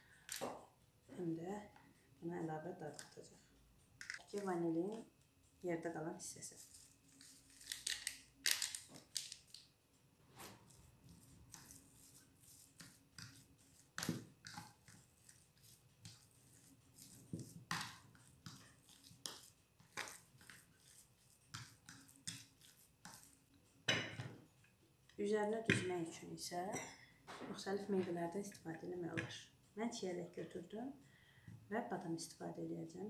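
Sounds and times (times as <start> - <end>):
spoon mashing soft cheese: 10.5 - 23.9.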